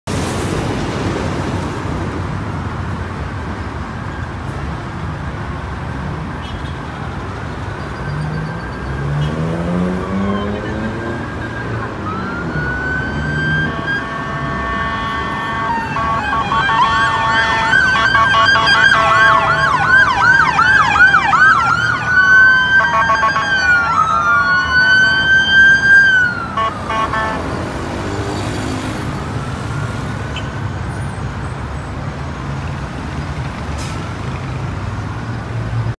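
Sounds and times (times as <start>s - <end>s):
heavy road traffic drone: 0.0s - 36.0s
police sirens wailing and yelping: 7.8s - 30.4s.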